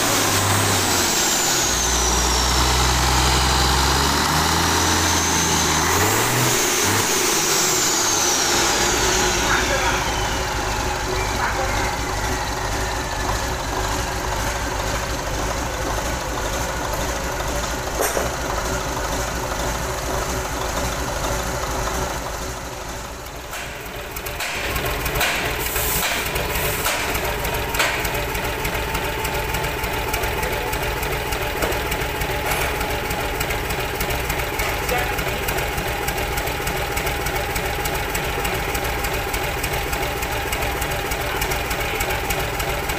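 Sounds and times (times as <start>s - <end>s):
diesel engine idling: 0.0s - 42.9s.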